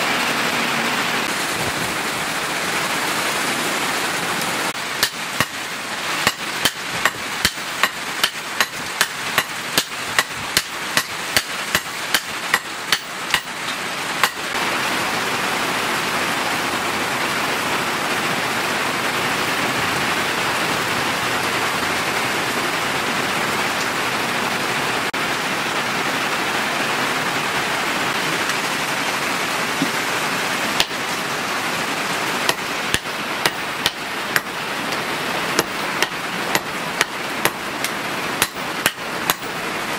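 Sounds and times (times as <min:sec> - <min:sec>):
heavy rain: 0:00.0 - 0:39.9
hammer blows on anvil: 0:05.0 - 0:05.6, 0:06.2 - 0:13.6, 0:14.2 - 0:14.4.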